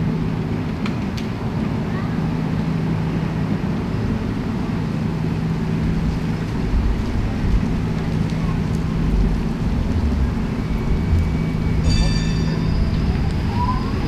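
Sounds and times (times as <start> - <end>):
low drone: 0.0 - 14.0
street traffic hum: 0.0 - 14.0.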